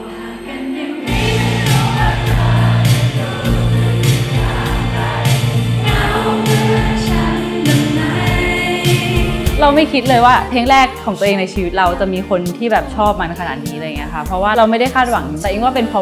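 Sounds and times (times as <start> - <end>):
live pop band music: 1.1 - 11.0.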